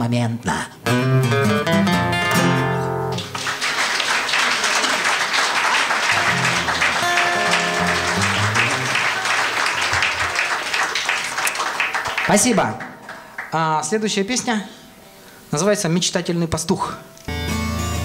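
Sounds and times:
acoustic guitars playing: 0.8s - 12.2s
audience applause: 3.1s - 13.6s.

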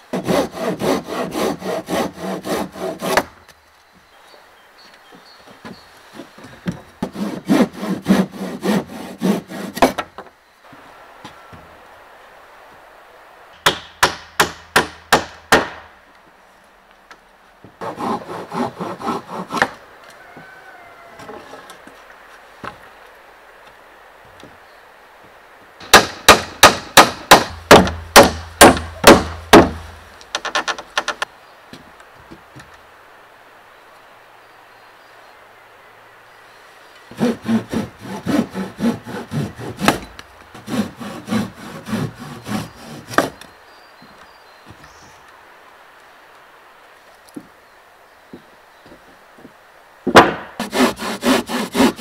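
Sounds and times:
handsaw cutting wood: 0.1s - 3.3s, 7.0s - 9.9s, 17.8s - 19.8s, 37.1s - 43.4s, 50.6s - 52.0s
hammer driving nails: 25.8s - 29.8s.

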